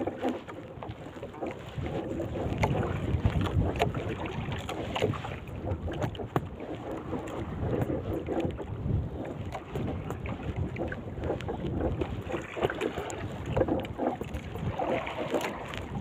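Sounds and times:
water lapping against boat hull: 0.0s - 16.0s
wind buffeting microphone: 0.0s - 16.0s.

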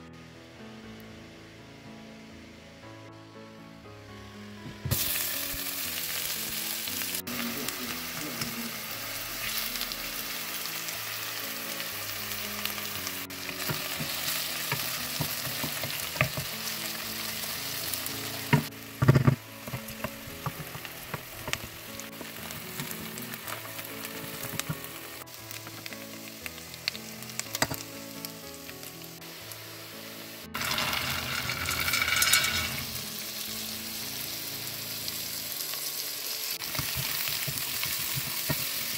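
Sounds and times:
onion sizzling in oil: 4.8s - 38.9s
wooden spoon stirring: 30.6s - 33.0s.

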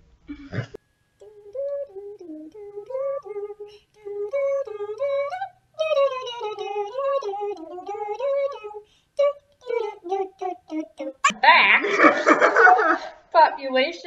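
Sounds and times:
woman singing unaccompanied: 1.2s - 11.4s.

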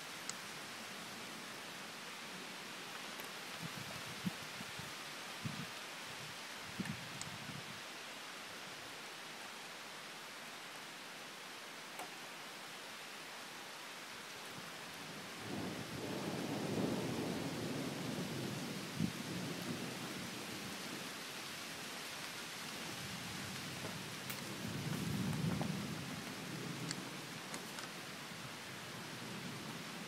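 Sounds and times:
rain hissing: 0.0s - 30.0s
thunder rumbling: 15.4s - 20.5s.

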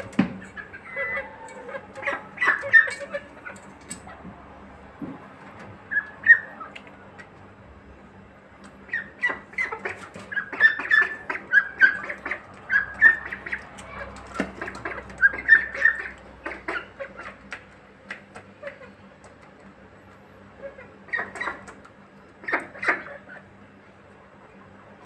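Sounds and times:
chicks peeping: 0.0s - 4.2s, 8.7s - 19.5s, 20.6s - 23.5s.

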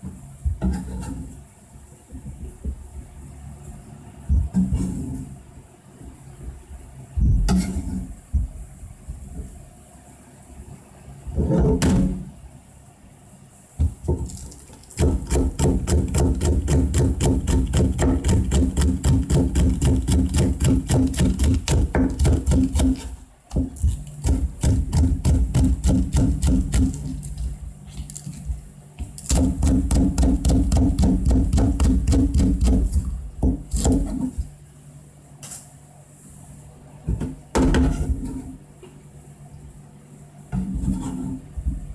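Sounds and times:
knife chopping on cutting board: 15.0s - 27.2s, 29.2s - 34.2s.

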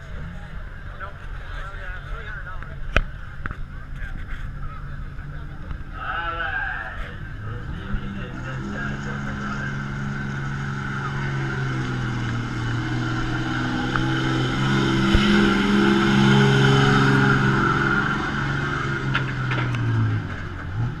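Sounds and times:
diesel truck engine under load: 7.0s - 21.0s.

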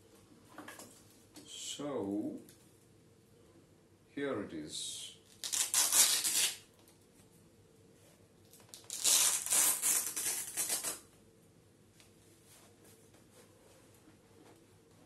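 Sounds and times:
velcro strap ripping open: 5.3s - 6.7s, 8.7s - 11.1s.

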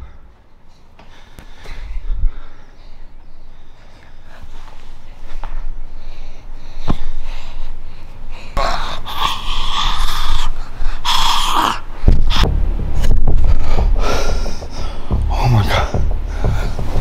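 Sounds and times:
person gasping and snorting: 8.6s - 12.5s
heavy low rumbling knocks: 12.1s - 17.0s.

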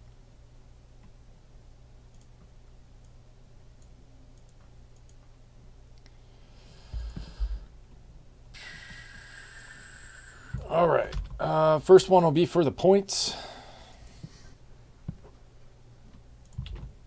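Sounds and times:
low steady hum: 0.0s - 17.0s
computer mouse clicks: 2.1s - 2.3s, 3.8s - 5.2s.

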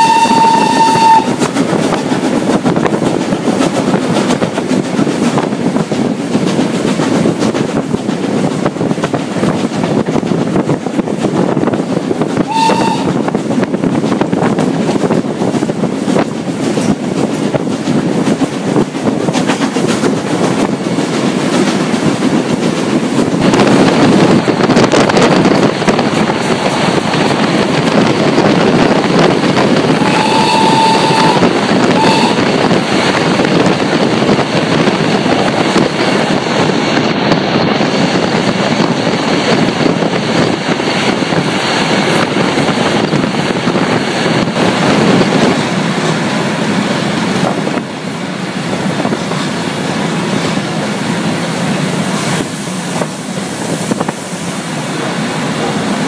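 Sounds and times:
steam locomotive whistle: 0.0s - 1.5s, 12.5s - 13.3s, 29.9s - 32.8s
train running noise: 0.0s - 56.0s.

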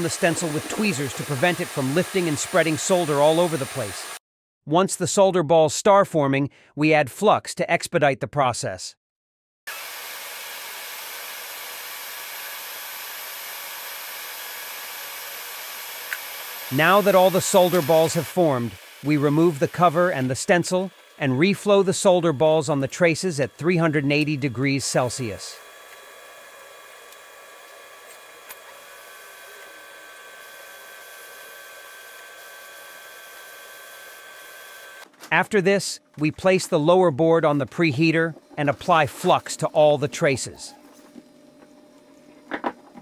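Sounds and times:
heat gun blowing air: 0.0s - 4.2s, 9.7s - 35.1s.

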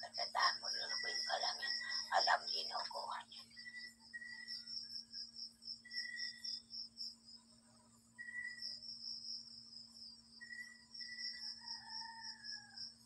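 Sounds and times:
low steady hum: 0.0s - 11.5s
insects trilling: 0.0s - 13.0s.

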